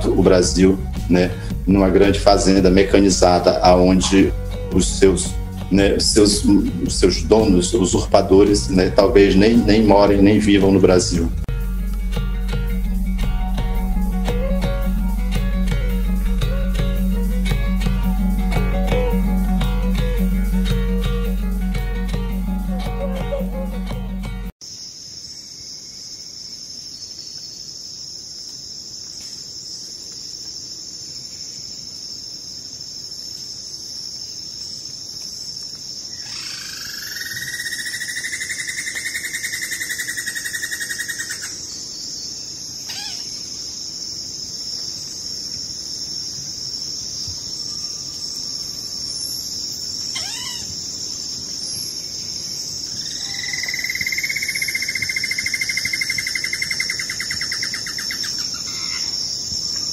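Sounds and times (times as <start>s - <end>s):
insect high trill: 0.0s - 59.9s
lower pulsing insect trill: 0.0s - 59.9s.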